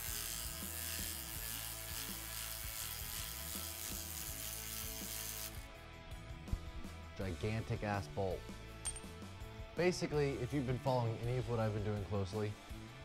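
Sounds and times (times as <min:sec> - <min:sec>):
electric ratchet running: 0:00.0 - 0:05.7
background music: 0:00.0 - 0:13.0.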